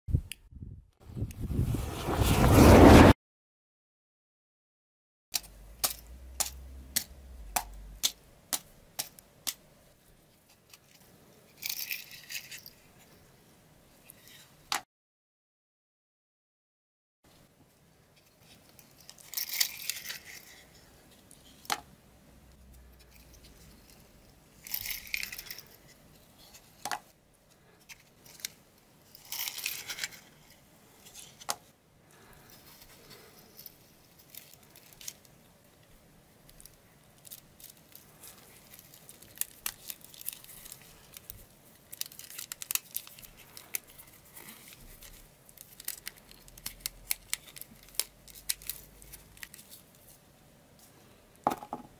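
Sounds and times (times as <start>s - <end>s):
matches sliding out of boxes: 1.6s - 3.1s.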